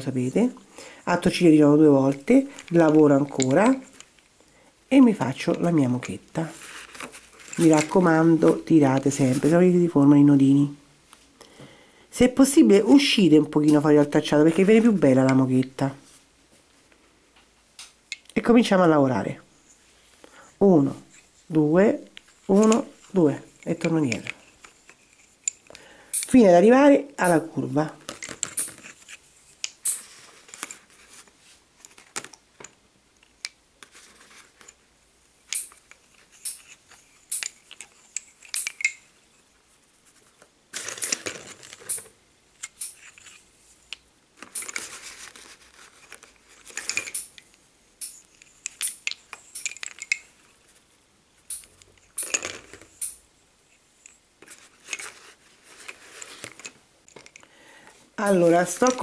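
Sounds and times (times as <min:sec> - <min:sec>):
wooden bobbins clicking together: 0:02.1 - 0:04.3, 0:22.2 - 0:26.4, 0:28.0 - 0:30.8, 0:35.5 - 0:39.2, 0:40.8 - 0:44.9, 0:46.1 - 0:50.4, 0:51.5 - 0:53.2.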